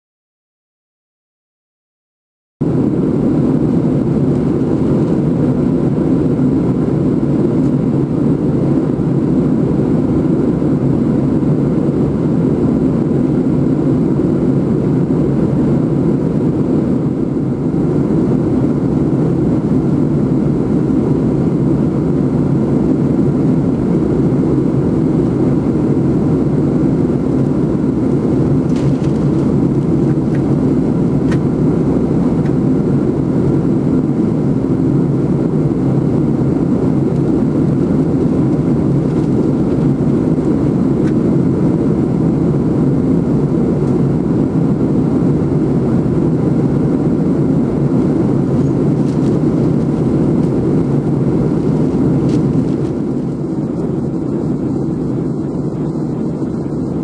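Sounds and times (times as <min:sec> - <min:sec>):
airliner cabin engine rumble: 0:02.6 - 0:57.0.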